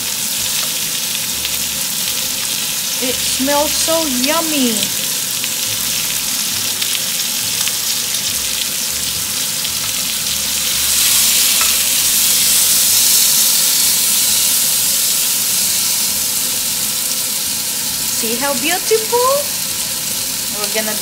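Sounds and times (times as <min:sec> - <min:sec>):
meat sizzling in a grill pan: 0:00.0 - 0:21.0
meat turned with tongs: 0:05.9 - 0:16.4.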